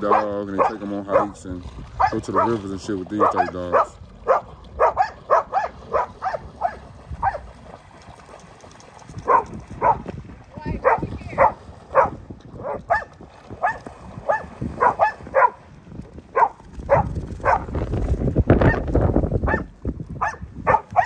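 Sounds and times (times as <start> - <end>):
dog barking: 0.1 - 1.4, 2.0 - 2.6, 3.2 - 7.4, 9.3 - 10.0, 10.8 - 15.6, 16.4 - 17.7, 19.5 - 21.0.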